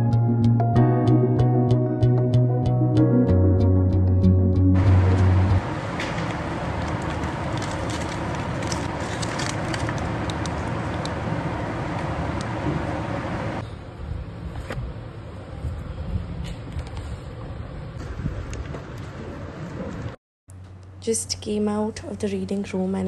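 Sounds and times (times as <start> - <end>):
air conditioning noise: 4.8 - 23.0
plastic wrap crinkling: 6.1 - 11.2.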